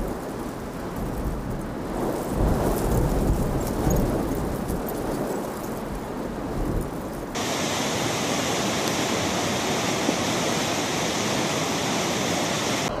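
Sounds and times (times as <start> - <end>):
floodwater rushing: 7.4 - 13.0.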